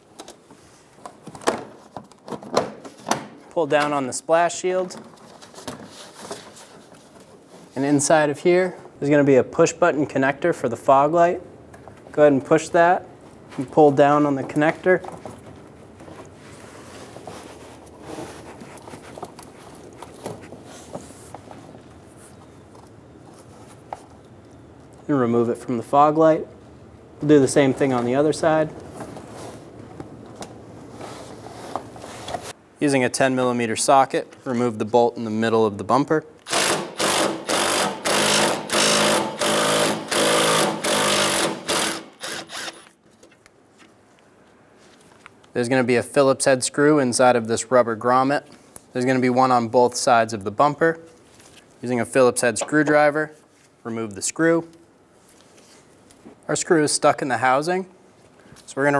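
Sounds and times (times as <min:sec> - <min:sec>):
plastic handling noise: 0:04.8 - 0:07.8, 0:13.3 - 0:25.1
cordless impact wrench bursts: 0:36.5 - 0:43.0.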